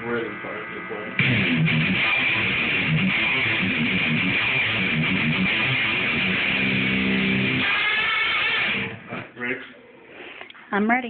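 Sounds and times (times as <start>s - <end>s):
electric guitar shredding: 1.2s - 9.3s.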